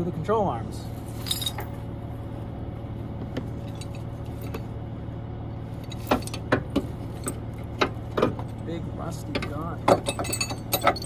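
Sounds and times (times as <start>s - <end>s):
low engine hum: 0.0s - 11.0s
tow chain clinking and rattling: 1.0s - 1.9s, 3.5s - 4.7s, 5.7s - 11.0s.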